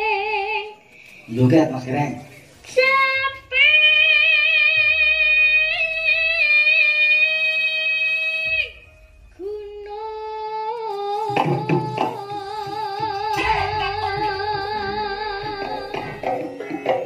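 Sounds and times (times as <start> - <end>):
woman singing with vibrato: 0.0 - 0.9, 2.6 - 17.0
drum strikes: 11.3 - 17.0.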